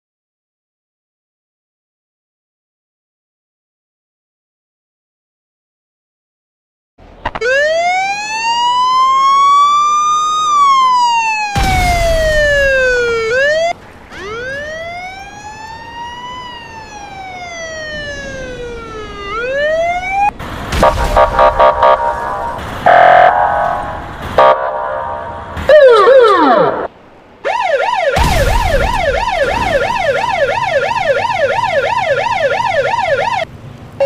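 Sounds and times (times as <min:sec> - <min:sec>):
electronic police siren: 0:07.3 - 0:33.5
older-style police siren wailing: 0:07.3 - 0:33.5
sharp bangs: 0:11.5 - 0:13.7, 0:20.4 - 0:26.9, 0:28.1 - 0:32.8
noisy crash: 0:11.6 - 0:13.2, 0:20.4 - 0:25.8, 0:28.2 - 0:30.9
pulsing horn-like blasts: 0:20.8 - 0:26.9.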